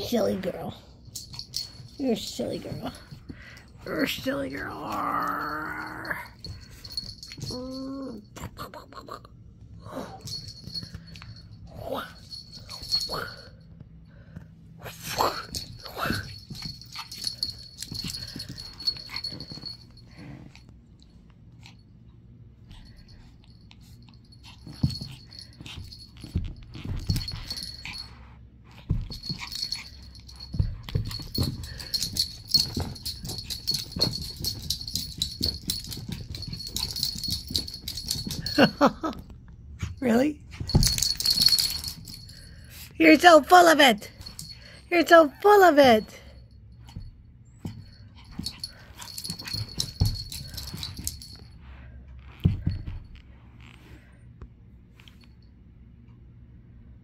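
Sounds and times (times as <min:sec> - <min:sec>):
collar jingling: 0:00.0 - 0:08.5, 0:10.0 - 0:13.7, 0:15.0 - 0:20.7, 0:22.6 - 0:53.2
puppy thumps and scuffles: 0:24.6 - 0:28.1, 0:28.7 - 0:39.2, 0:39.8 - 0:42.2, 0:52.2 - 0:53.4.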